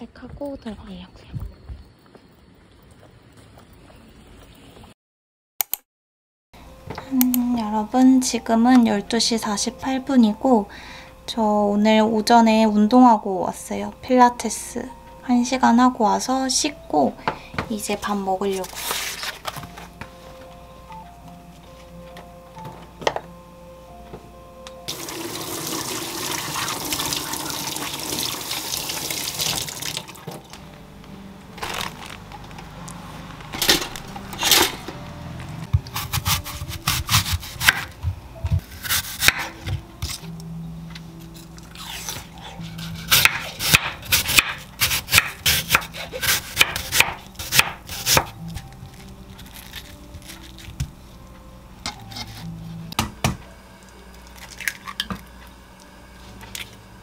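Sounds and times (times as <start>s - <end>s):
kitchen tap running: 24.9s - 30.3s
knife slicing on wooden board: 41.8s - 48.3s.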